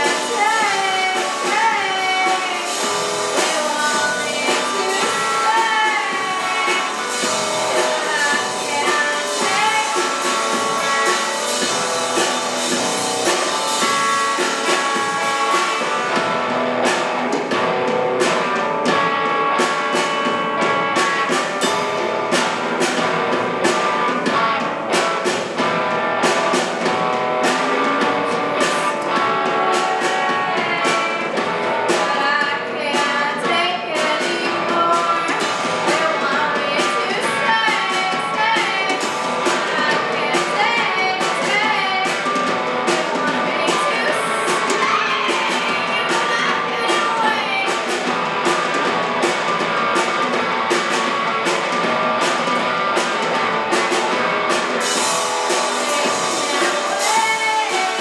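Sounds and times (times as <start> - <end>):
woman singing: 0.0 - 16.0, 27.5 - 47.9, 55.5 - 58.0
drum kit beat: 0.0 - 58.0
electric guitars: 0.0 - 58.0.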